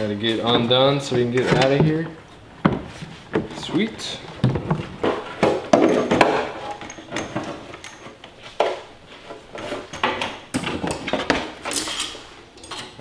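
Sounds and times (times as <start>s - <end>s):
knocks and clunks on go-kart frame: 4.3s - 8.9s.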